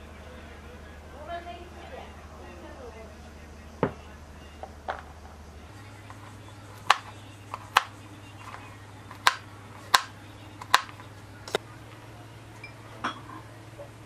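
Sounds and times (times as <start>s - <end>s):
steady low hum: 0.0s - 14.0s
knife chopping on plastic board: 6.8s - 8.0s, 9.1s - 11.0s.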